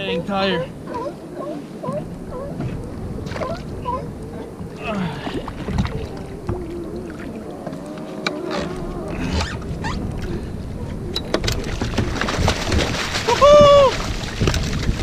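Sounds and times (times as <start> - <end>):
water sloshing against boat hull: 0.0 - 15.0
wind rumbling on microphone: 0.0 - 15.0
clicks and knocks on boat: 11.1 - 15.0.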